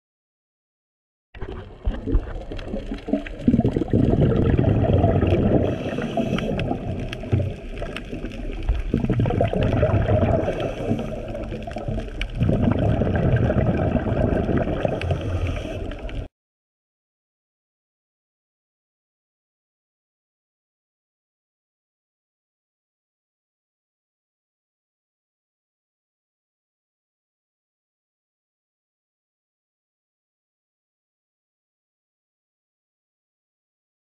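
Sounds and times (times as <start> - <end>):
underwater breath bubbling: 1.4 - 16.3.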